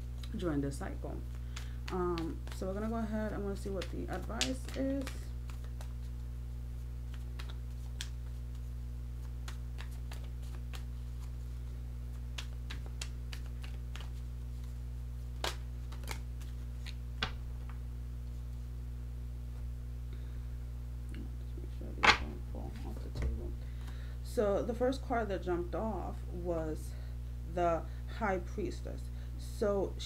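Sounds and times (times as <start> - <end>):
cards being shuffled: 0.0 - 0.5, 1.2 - 6.2, 7.0 - 18.6
steady low hum: 0.0 - 30.0.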